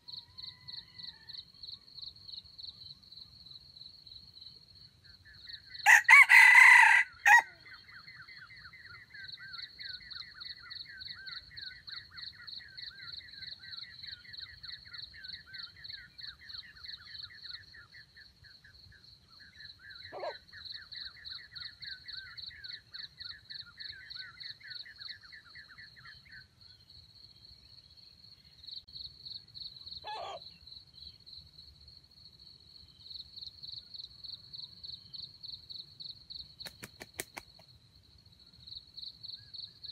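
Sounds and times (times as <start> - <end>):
insects chirping and trilling: 0.0 - 39.9
rooster crowing: 0.3 - 1.4, 5.8 - 7.6.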